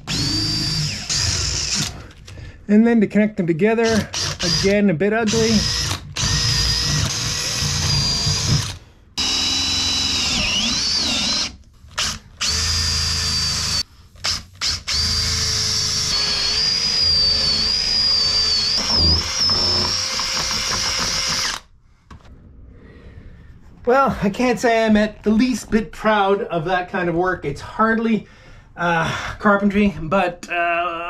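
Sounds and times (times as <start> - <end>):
cordless drill boring through wood: 0.0 - 2.2, 3.8 - 21.7.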